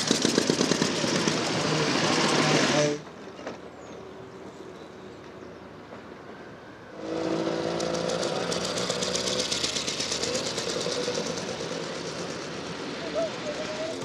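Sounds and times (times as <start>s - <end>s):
motorcycle engine riding past: 7.1s - 12.5s.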